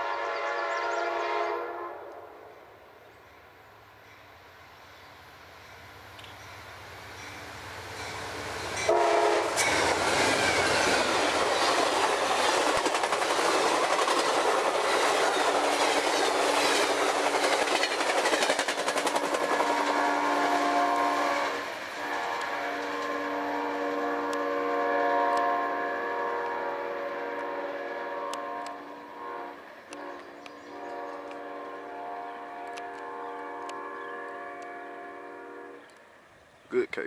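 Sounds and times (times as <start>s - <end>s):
train horn: 0.0s - 2.7s, 8.8s - 11.4s, 19.1s - 35.9s
train wheels clattering: 7.2s - 20.3s.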